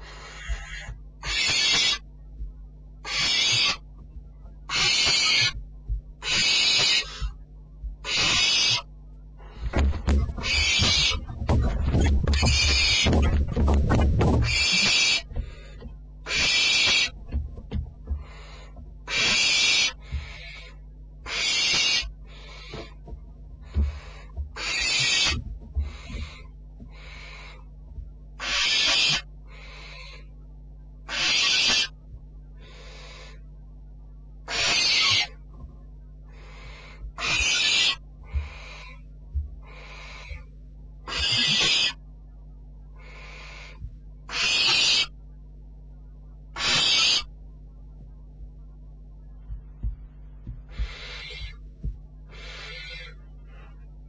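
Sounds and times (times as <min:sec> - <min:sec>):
owl chick hissing calls: 0:00.0 - 0:02.0, 0:03.0 - 0:03.8, 0:04.7 - 0:05.6, 0:06.2 - 0:07.4, 0:08.0 - 0:09.7, 0:10.4 - 0:11.2, 0:14.4 - 0:15.6, 0:16.3 - 0:17.2, 0:18.2 - 0:23.0, 0:23.6 - 0:27.7, 0:28.4 - 0:30.3, 0:31.1 - 0:32.0, 0:32.6 - 0:33.4, 0:34.5 - 0:35.4, 0:36.3 - 0:39.0, 0:39.6 - 0:40.5, 0:41.1 - 0:42.0, 0:43.0 - 0:45.1, 0:46.6 - 0:47.3, 0:50.7 - 0:51.6, 0:52.3 - 0:53.7
low hum: 0:00.0 - 0:28.6, 0:29.2 - 0:31.2, 0:31.9 - 0:54.0
owlet rasping hiss call: 0:00.1 - 0:02.0, 0:31.1 - 0:31.9, 0:41.1 - 0:42.0, 0:44.3 - 0:45.1, 0:50.8 - 0:51.5, 0:52.3 - 0:53.2
soft low thumps: 0:02.2 - 0:02.9, 0:03.8 - 0:04.7, 0:05.4 - 0:06.3, 0:07.1 - 0:08.1, 0:09.4 - 0:16.2, 0:17.1 - 0:19.1, 0:20.0 - 0:20.5, 0:22.0 - 0:27.1, 0:27.8 - 0:28.4, 0:38.1 - 0:40.5, 0:43.8 - 0:44.2, 0:47.5 - 0:52.3.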